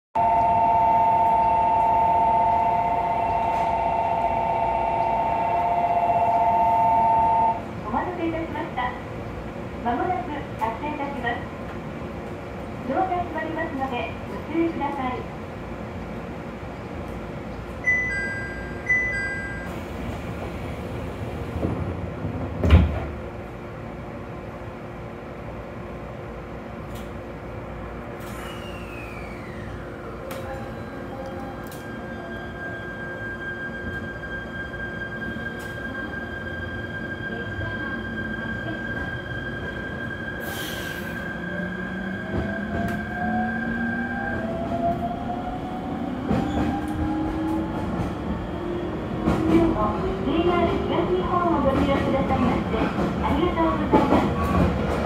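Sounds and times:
faint train running: 0:00.2 - 0:55.0
train doors sliding shut: 0:03.3 - 0:05.7, 0:19.5 - 0:23.4, 0:28.0 - 0:32.0, 0:40.4 - 0:43.9.

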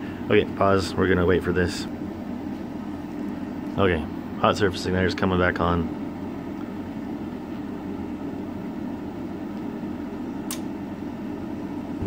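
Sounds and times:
furnace inducer motor running: 0:00.0 - 0:12.0
sharp click: 0:10.5 - 0:10.7.

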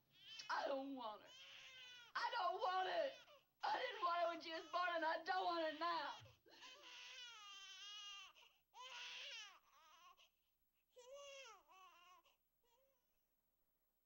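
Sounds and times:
infant crying: 0:01.3 - 0:02.2, 0:06.0 - 0:10.3, 0:10.9 - 0:13.0.

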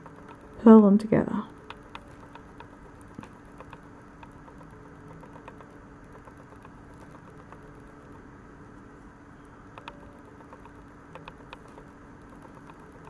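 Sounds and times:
metal knitting needles clicking: 0:00.0 - 0:00.6, 0:01.5 - 0:08.2, 0:09.7 - 0:13.0
steady low hum: 0:00.0 - 0:13.0.

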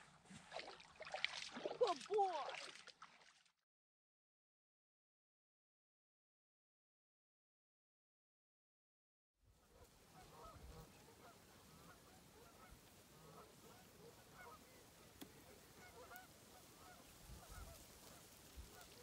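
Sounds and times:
distant geese honking: 0:09.6 - 0:19.0
faint clicks: 0:15.1 - 0:16.3.

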